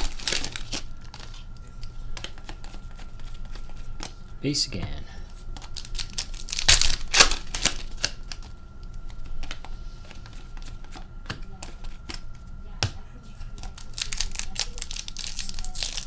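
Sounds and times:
trading cards flipped by hand: 2.2 - 4.2.

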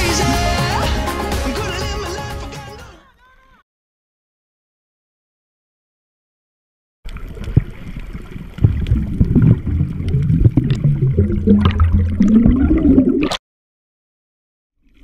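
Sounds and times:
breath bubbles underwater: 7.1 - 13.4
muffled underwater sloshing: 7.1 - 13.4.

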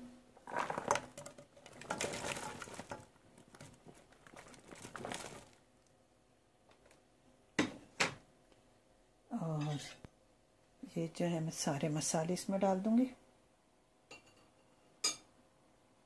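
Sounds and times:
onions pattering into a pot: 0.4 - 5.9.

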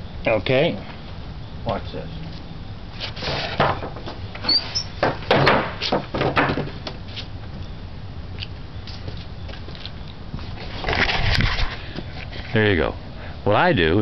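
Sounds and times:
wooden workbench knocks and scrapes: 3.0 - 7.0
brief squeak: 4.4 - 5.0.

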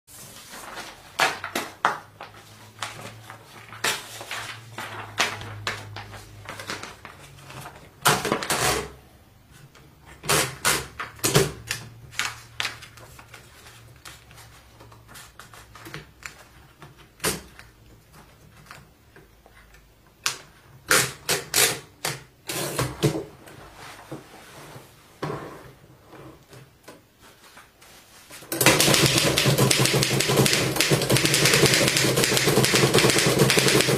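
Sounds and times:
rapid typing on typewriter: 28.5 - 33.9
typewriter carriage clicks and clunks: 28.5 - 33.9.

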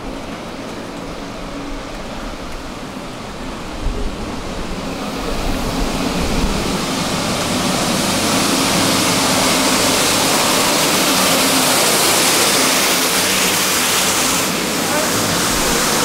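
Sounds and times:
sweeper engine hum: 4.3 - 16.0.

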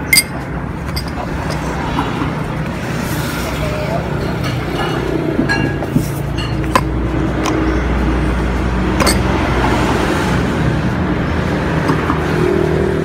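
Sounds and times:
metal spoon clinking ceramic bowl: 0.0 - 1.6, 9.0 - 9.3
background traffic rumble: 0.0 - 13.0.

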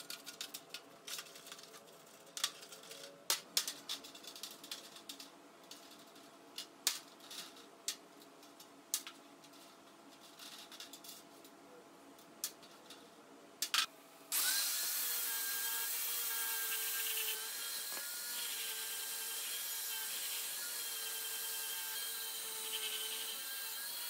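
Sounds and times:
angle grinder brushing metal: 14.3 - 24.0.

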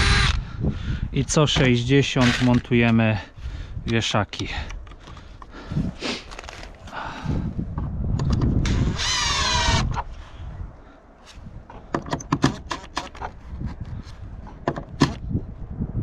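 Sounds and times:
impact driver whining: 0.0 - 0.4, 8.6 - 10.0
sharp clicks and knocks: 11.7 - 13.4, 14.4 - 15.2.

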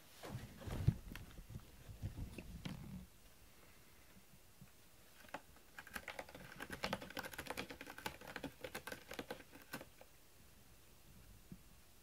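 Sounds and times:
cat clicking and scratching: 5.2 - 10.1.

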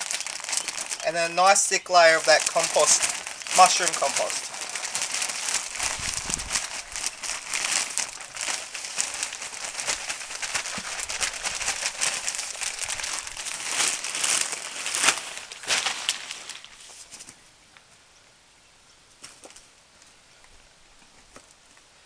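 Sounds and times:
plastic bag crinkling: 0.0 - 17.3.

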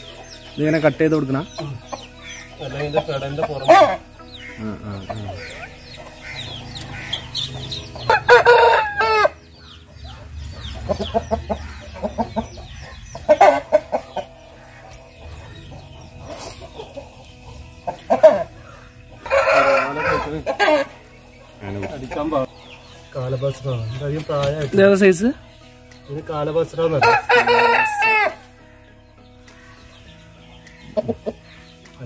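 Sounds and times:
roosters crowing: 1.8 - 22.8, 26.8 - 28.6
rooster clucking: 10.1 - 14.3.

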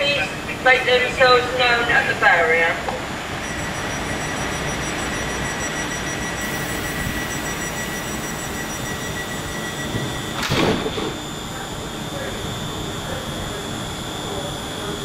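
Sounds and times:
train equipment humming: 0.0 - 15.0
thin high whines: 3.3 - 15.0.

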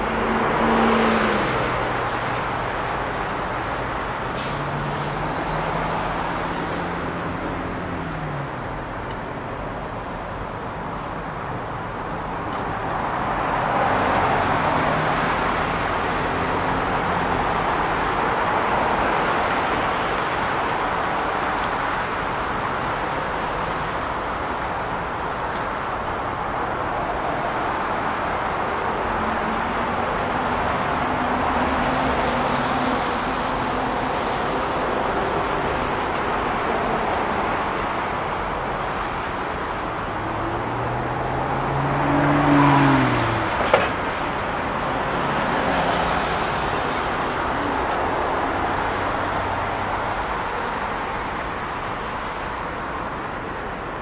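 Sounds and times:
dense traffic noise: 0.0 - 54.0
vehicle passing by: 39.9 - 50.1.

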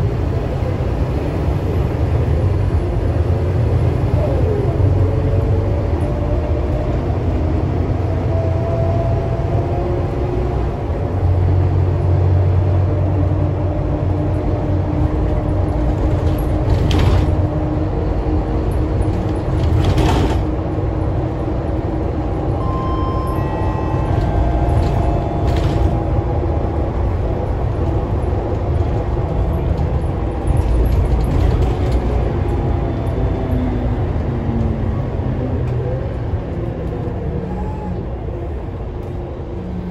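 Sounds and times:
bus engine rumble with whine: 0.0 - 39.9.

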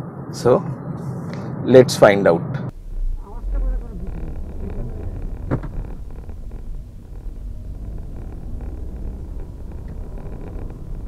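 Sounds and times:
road noise: 0.0 - 11.0
car engine rumble: 2.7 - 11.0.

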